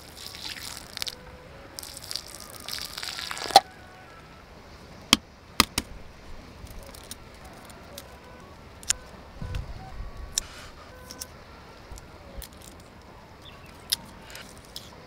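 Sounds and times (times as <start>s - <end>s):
liquid splashing on sandy ground: 0.0s - 3.7s.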